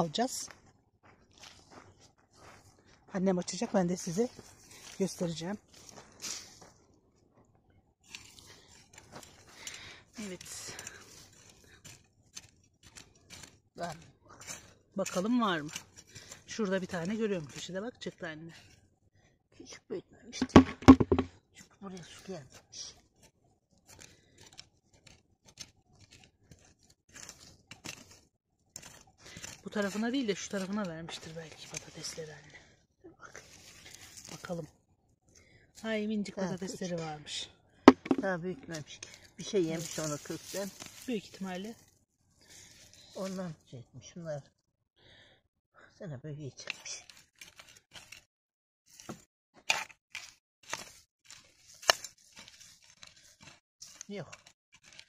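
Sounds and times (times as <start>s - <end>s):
trowel scraping stony soil: 8.0s - 17.7s, 23.2s - 32.3s, 46.8s - 48.3s, 48.9s - 55.0s.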